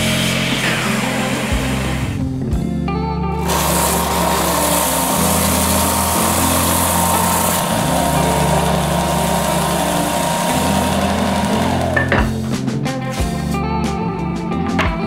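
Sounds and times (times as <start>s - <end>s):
wood sanding against belt: 0.0s - 2.2s, 3.4s - 12.1s
belt sander whining: 0.0s - 2.3s, 3.4s - 12.5s.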